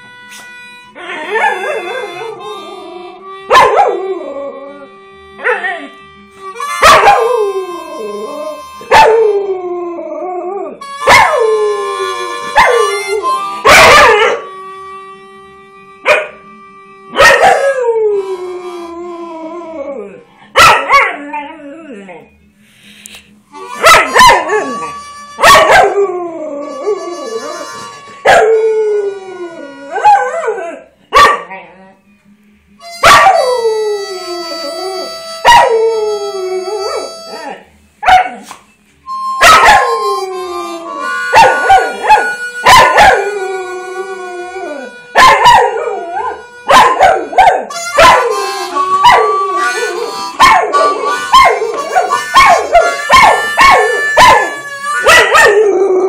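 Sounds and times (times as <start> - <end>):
harmonica notes: 0.0 - 9.8, 10.8 - 19.7, 22.3 - 30.8, 32.0 - 56.0
dog howling: 23.7 - 27.7, 39.4 - 56.0.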